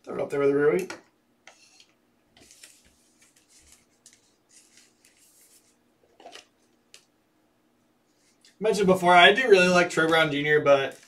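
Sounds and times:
cards rustling and scraping: 0:01.5 - 0:07.1.

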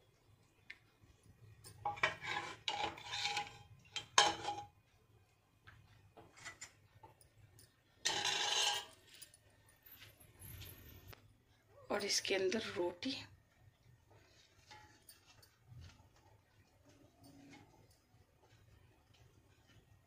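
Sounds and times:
metal ladle scraping dishes: 0:01.8 - 0:04.7, 0:06.2 - 0:06.8, 0:08.0 - 0:09.1.

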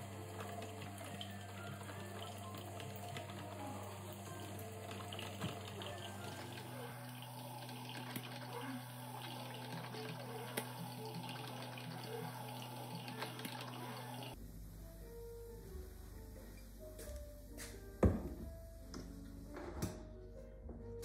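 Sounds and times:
coffee maker gurgling: 0:00.0 - 0:14.4.

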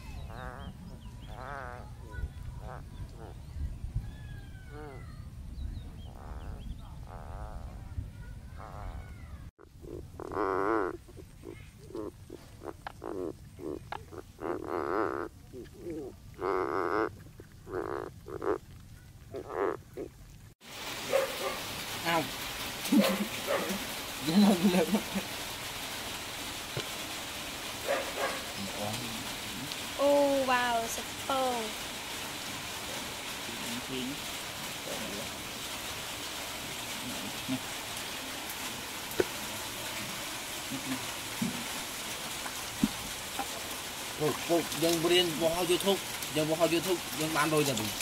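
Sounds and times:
bullfrogs croaking: 0:00.2 - 0:03.4, 0:06.1 - 0:07.9, 0:08.6 - 0:20.4
steady hiss: 0:20.6 - 0:48.0.

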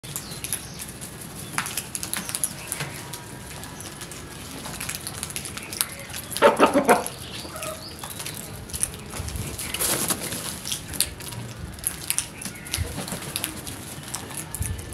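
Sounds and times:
birds pecking on concrete: 0:00.0 - 0:14.9
loud bird calls: 0:05.4 - 0:11.0, 0:12.1 - 0:13.3.

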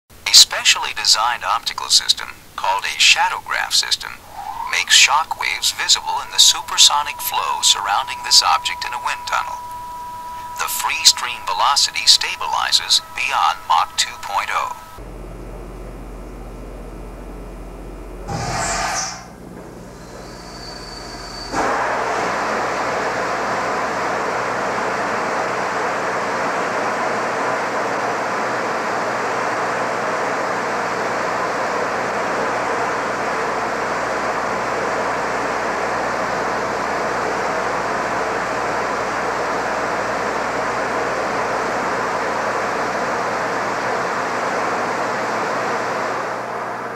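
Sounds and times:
wind tunnel air rushing: 0:04.2 - 0:05.8.

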